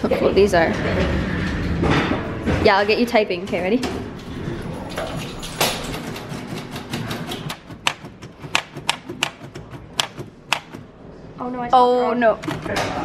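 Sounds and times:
manual typewriter clacking: 4.9 - 10.9, 12.4 - 13.0.

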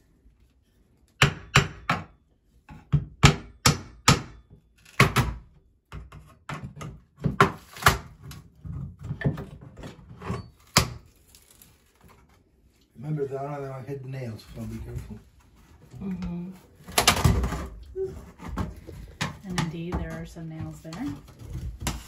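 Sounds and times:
hammer striking pry bar: 1.2 - 2.1, 3.2 - 4.4.

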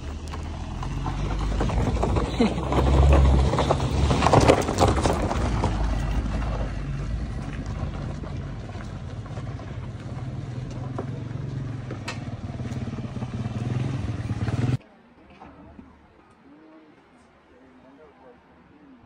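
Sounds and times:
vehicle knocks and rattles: 0.0 - 13.0
vehicle engine running: 0.0 - 14.8.

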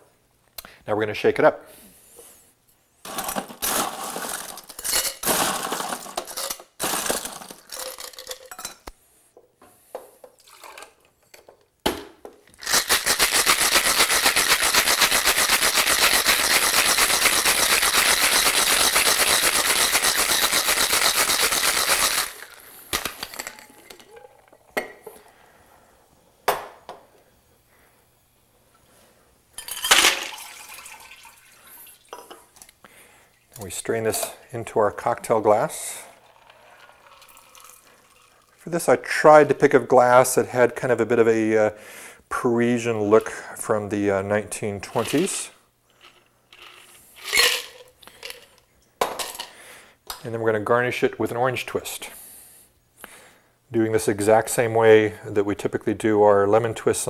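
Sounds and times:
ice rattling in cocktail shaker: 3.1 - 8.7, 12.6 - 24.1, 36.1 - 38.6, 44.9 - 48.6.

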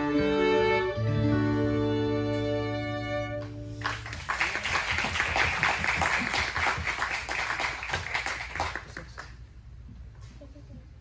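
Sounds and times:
fiddles and acoustic guitar chord: 0.0 - 3.8
audience applauding: 3.8 - 9.5.

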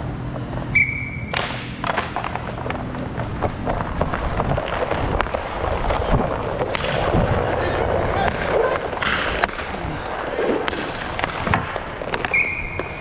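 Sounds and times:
steady low rumble: 0.0 - 13.0
hockey sticks and puck clacking: 0.3 - 13.0
skate wheels clattering on tiles: 1.3 - 13.0.

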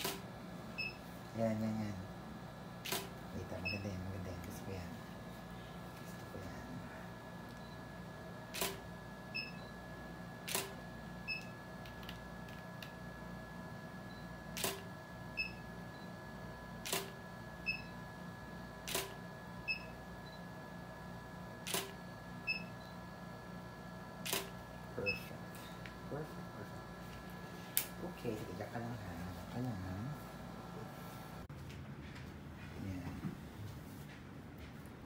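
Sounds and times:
faint steady hum: 0.0 - 35.0
camera shutter clicking: 2.8 - 3.1, 8.6 - 8.8, 10.5 - 10.8, 14.6 - 14.9, 16.8 - 17.2, 18.9 - 19.2, 21.7 - 22.0, 24.2 - 24.6.

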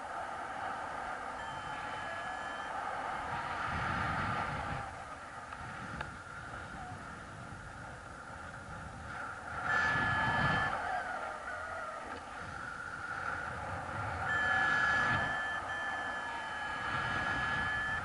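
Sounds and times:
wind buffeting microphone: 0.0 - 18.0
high beep: 1.4 - 2.7, 10.0 - 10.8, 14.3 - 18.0.

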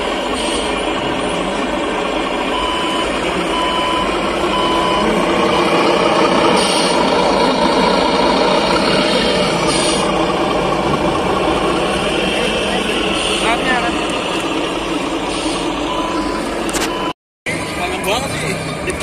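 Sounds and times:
engine-like running noise: 0.0 - 19.0
reversing alarm beeps: 2.4 - 6.1, 15.6 - 17.2.

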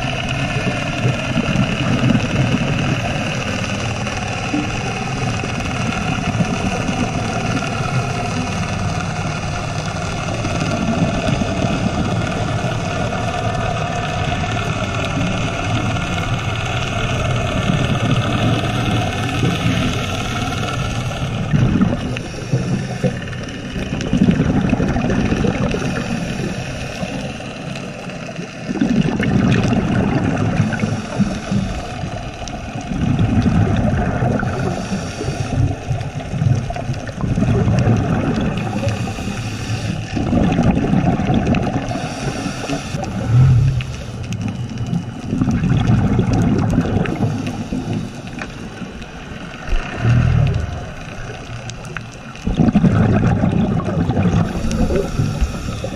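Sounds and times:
underwater exhaled bubbles: 0.0 - 55.9
diver breathing in: 17.9 - 24.1, 25.5 - 28.2, 30.5 - 32.1, 34.3 - 36.2, 38.3 - 40.6, 41.7 - 45.1, 46.8 - 52.1, 54.2 - 55.9.

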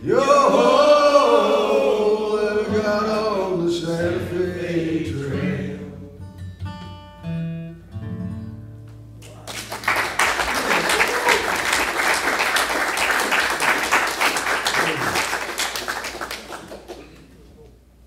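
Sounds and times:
acoustic guitar notes ringing: 5.3 - 9.2
audience applause: 9.2 - 17.5.

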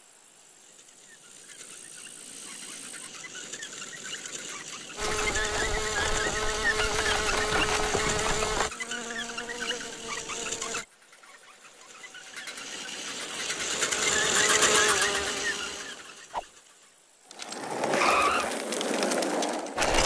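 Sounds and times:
fly buzzing: 4.9 - 16.6.

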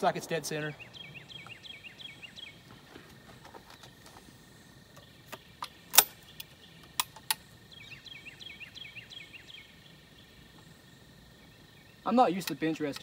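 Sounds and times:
shotgun metallic clicks: 5.0 - 7.5.

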